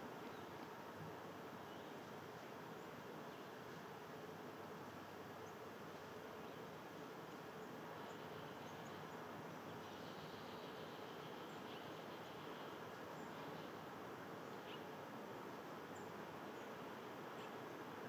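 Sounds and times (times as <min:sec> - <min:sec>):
low hum and hiss: 0:00.0 - 0:18.0.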